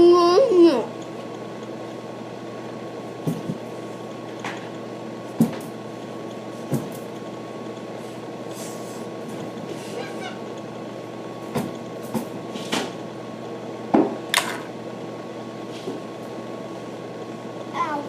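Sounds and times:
electrical hum: 0.0s - 18.0s
knocks and bumps: 3.2s - 3.6s.

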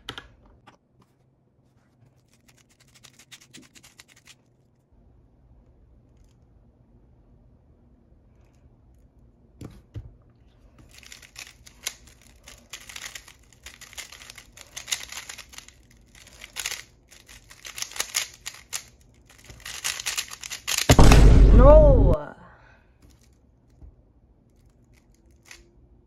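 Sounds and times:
plastic puzzle cube turning clicks: 10.9s - 20.9s, 24.5s - 25.7s.

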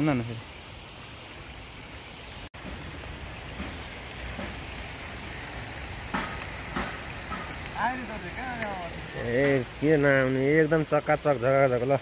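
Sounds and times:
flowing stream hiss: 0.0s - 12.0s.

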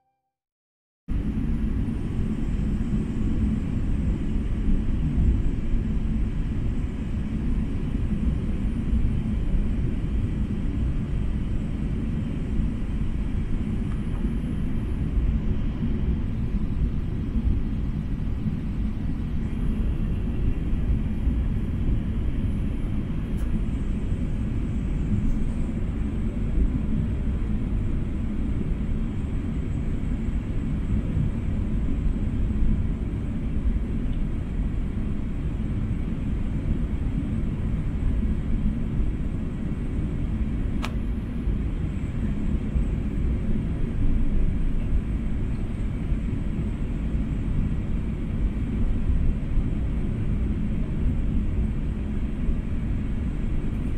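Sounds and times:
airliner cabin rumble: 1.1s - 53.9s
faint click: 40.8s - 41.0s.

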